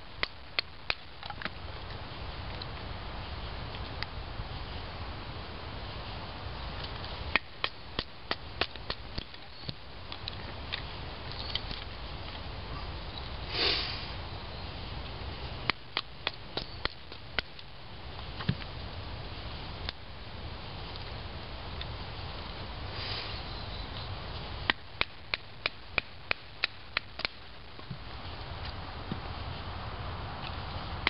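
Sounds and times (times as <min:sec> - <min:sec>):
knife splitting wood sticks: 0:06.8 - 0:11.9, 0:15.6 - 0:17.7, 0:24.7 - 0:27.9.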